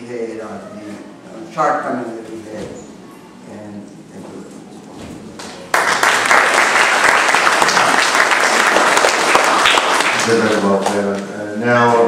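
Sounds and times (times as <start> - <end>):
audience applauding: 5.4 - 11.1.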